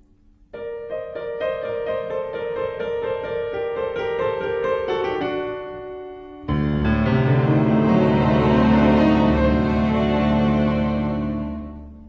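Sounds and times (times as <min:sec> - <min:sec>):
piano music: 0:00.0 - 0:12.0.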